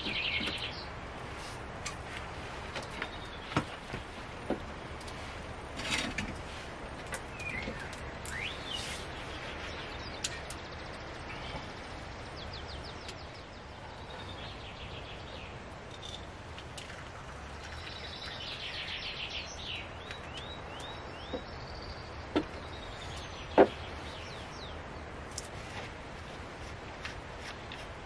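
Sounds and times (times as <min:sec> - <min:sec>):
outdoor background hiss: 0:00.0 - 0:28.0
bird chirps: 0:07.3 - 0:16.3, 0:17.6 - 0:24.8.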